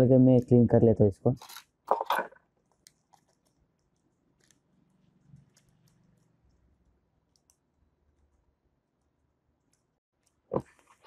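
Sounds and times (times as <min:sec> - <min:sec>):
metal tool clicking and scraping: 0:01.4 - 0:02.4.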